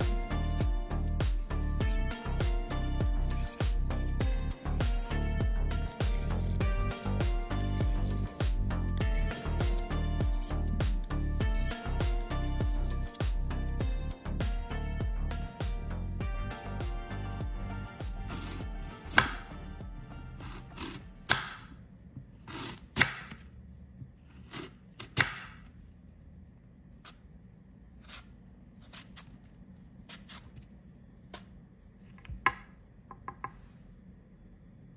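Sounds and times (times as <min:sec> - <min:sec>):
knife slicing apple: 0:03.2 - 0:04.0, 0:04.6 - 0:10.9, 0:18.1 - 0:19.6, 0:20.3 - 0:21.7, 0:22.4 - 0:23.4, 0:24.2 - 0:25.7, 0:28.0 - 0:31.6
knife knocking on wooden board: 0:32.2 - 0:33.6.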